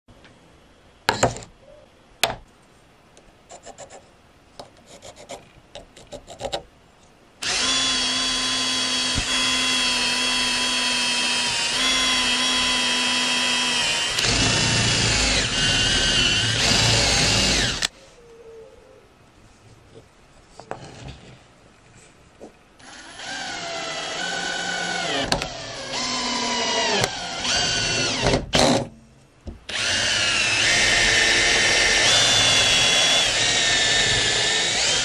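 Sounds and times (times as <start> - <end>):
electric drill boring plywood: 7.4 - 17.9, 22.8 - 28.8, 29.7 - 35.0.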